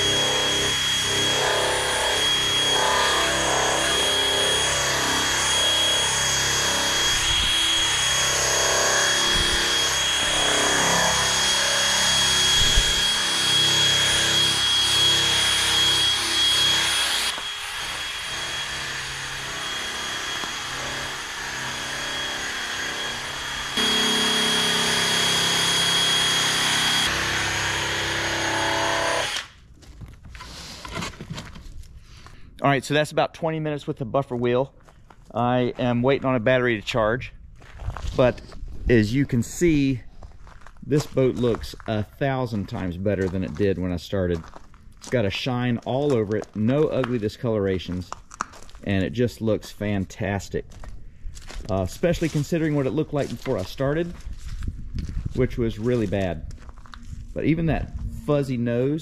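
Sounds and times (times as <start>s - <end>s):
drill motor whine: 0.0s - 29.5s.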